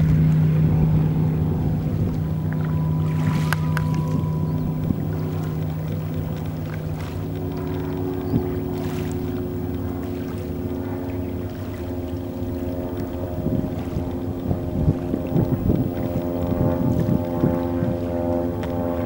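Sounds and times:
engine drone: 0.0 - 19.0.

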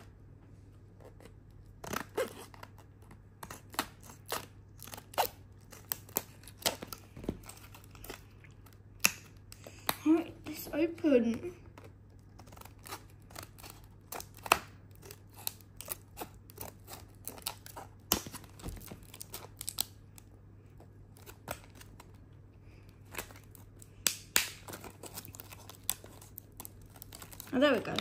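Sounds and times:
scissors snipping plastic: 11.2 - 20.0.

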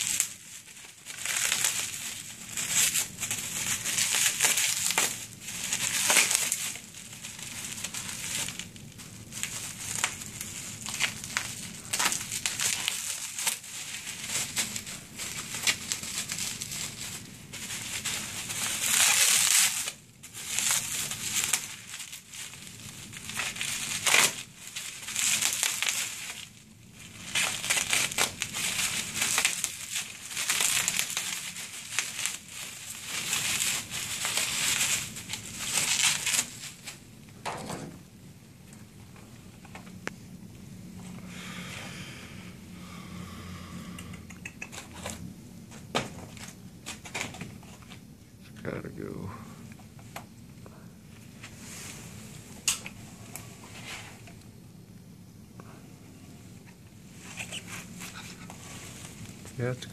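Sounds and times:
bubble wrap crinkling: 0.0 - 43.4, 44.5 - 59.9.

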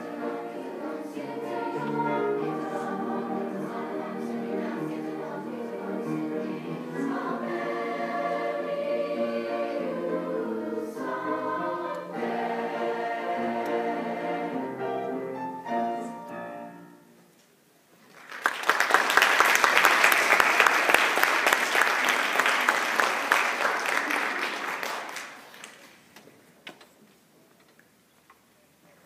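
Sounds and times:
children's choir singing: 0.0 - 16.8
piano: 0.0 - 17.4
audience applauding: 18.1 - 26.1.

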